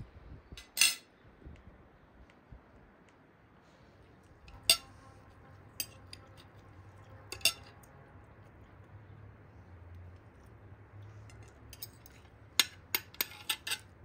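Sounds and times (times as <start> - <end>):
cutlery clinking on china plate: 0.6 - 1.1, 4.5 - 5.0, 5.8 - 6.6, 7.3 - 7.9, 11.2 - 13.9.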